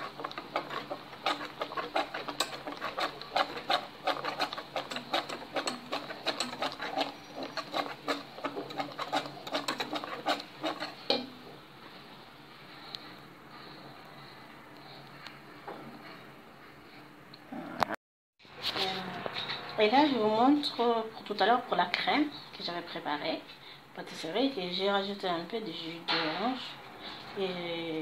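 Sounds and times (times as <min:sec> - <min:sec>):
whisk clicking against metal pan: 0:00.0 - 0:11.3.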